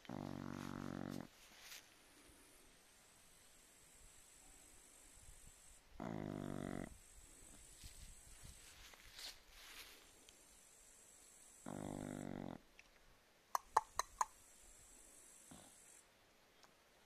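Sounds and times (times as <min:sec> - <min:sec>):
dog snoring: 0:00.0 - 0:01.3, 0:06.0 - 0:07.0, 0:11.6 - 0:12.6
sharp clicks: 0:13.6 - 0:14.4.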